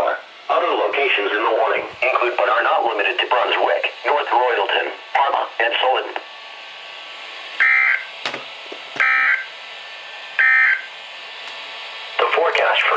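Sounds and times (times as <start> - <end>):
radio hiss: 0.0 - 6.3, 12.1 - 12.9
buzzy digital data bursts: 10.4 - 10.9.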